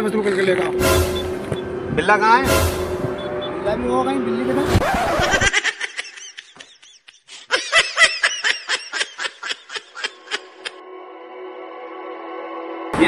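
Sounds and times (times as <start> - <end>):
person laughing high-pitched: 5.1 - 10.8.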